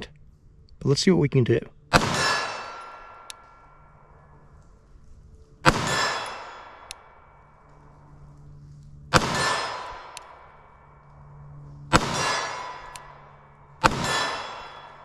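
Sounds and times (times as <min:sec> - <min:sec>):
pistol shots: 0:01.9 - 0:04.0, 0:05.6 - 0:07.7, 0:09.1 - 0:11.0, 0:11.9 - 0:15.0.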